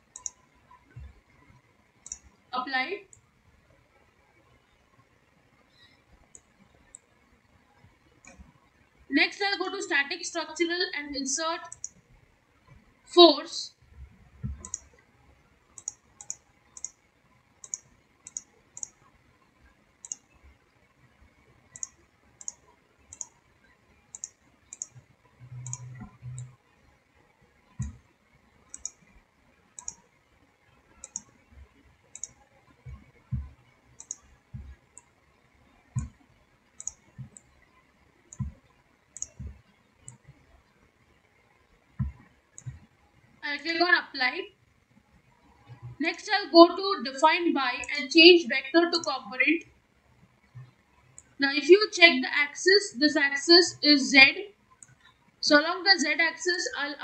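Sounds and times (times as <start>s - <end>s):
computer mouse clicking: 0.1s - 2.4s, 3.1s - 3.3s, 5.7s - 7.2s, 8.2s - 8.8s, 11.6s - 12.0s, 14.0s - 15.0s, 15.7s - 19.1s, 20.0s - 20.8s, 21.7s - 23.5s, 24.1s - 26.6s, 27.7s - 28.1s, 28.7s - 29.2s, 29.8s - 30.2s, 30.9s - 35.2s, 35.9s - 37.6s, 38.3s - 40.6s, 41.9s - 42.9s, 50.4s - 51.4s, 54.8s - 55.2s
soft low thumps: 14.0s - 14.7s, 32.9s - 33.6s, 34.5s - 34.8s, 42.0s - 42.9s.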